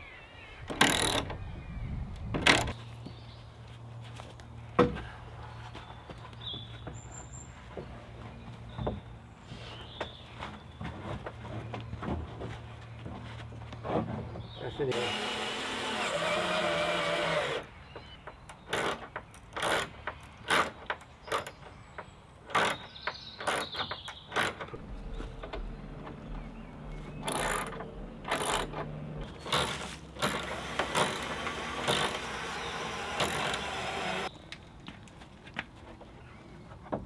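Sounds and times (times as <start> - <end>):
low drill hum: 14.9 - 17.6, 30.2 - 34.3
cordless drill bursts: 30.2 - 34.3.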